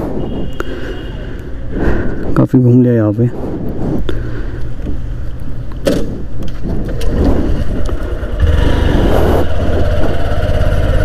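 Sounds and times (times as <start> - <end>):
motorcycle engine running: 6.5 - 11.0.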